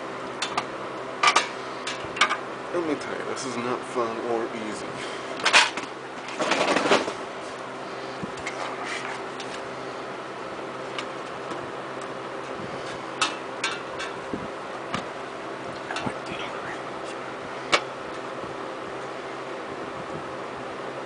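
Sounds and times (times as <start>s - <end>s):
steady low hum: 0.0s - 21.0s
metal housing scraping: 5.0s - 9.8s.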